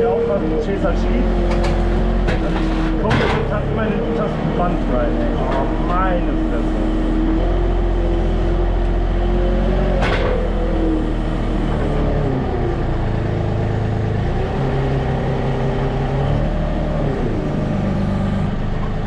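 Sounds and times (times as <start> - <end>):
diesel engine under load: 0.0 - 19.0.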